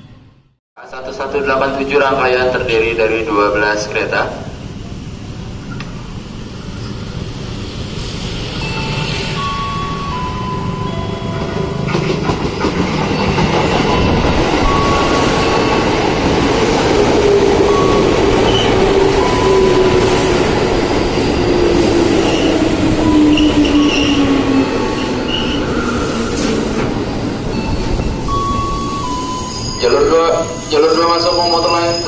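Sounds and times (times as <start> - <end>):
wheels rumbling on rail: 4.3 - 30.8
brake and wheel squeals: 22.3 - 26.6, 27.6 - 32.0.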